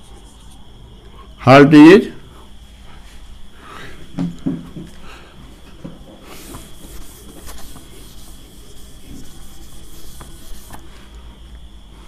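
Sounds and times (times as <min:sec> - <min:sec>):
duster rubbing on whiteboard: 0:06.2 - 0:10.9.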